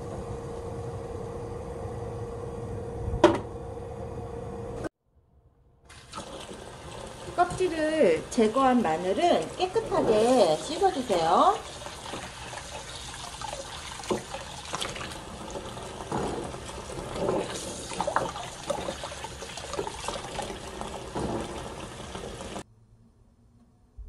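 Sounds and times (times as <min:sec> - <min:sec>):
tap running into basin: 0:05.9 - 0:22.6
water splashing and sloshing: 0:05.9 - 0:22.6.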